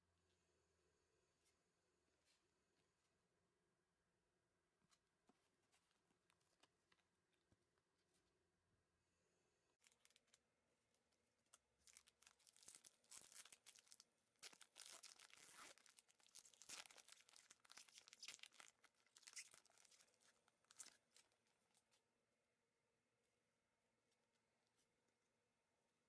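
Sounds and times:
foil wrapper tearing and crinkling: 11.8 - 21.2.

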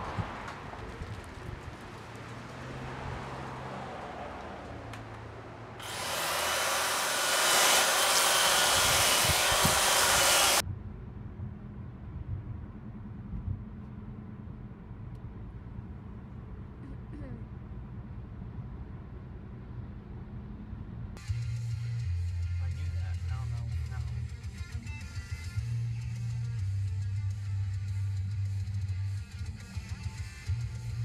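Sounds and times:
power tool hissing on wood: 5.8 - 10.6.

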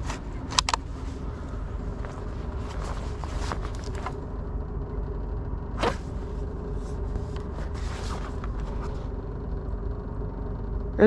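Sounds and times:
rattles and clicks from the ride: 0.0 - 11.0
vehicle engine low rumble: 0.0 - 11.0.

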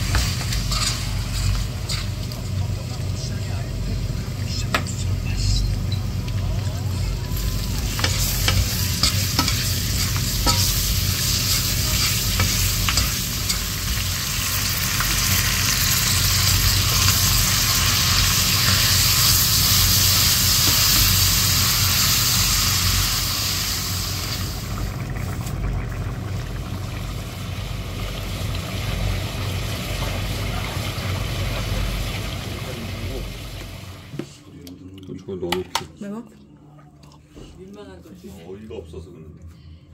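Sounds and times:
spatula scraping a pan: 0.0 - 2.2
meat sizzling in a pan: 0.0 - 2.8, 7.1 - 25.6, 26.4 - 34.1
steady low hum: 0.0 - 22.2.

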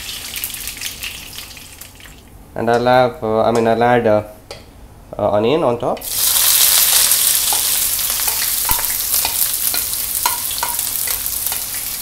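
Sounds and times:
onions sizzling in hot oil: 6.0 - 12.0
spatula knocking pan: 7.3 - 11.8.

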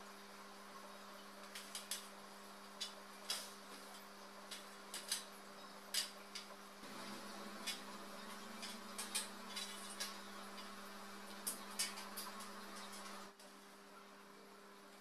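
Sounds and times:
faint steady hum: 0.0 - 15.0
metal shelf parts clicking: 1.4 - 2.1, 2.8 - 6.5, 7.6 - 13.2.

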